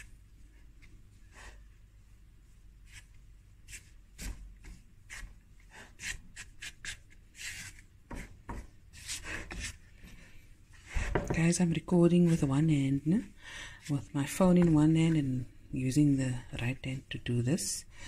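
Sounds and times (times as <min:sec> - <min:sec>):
spatula scraping dough in bowl: 0:02.8 - 0:09.9.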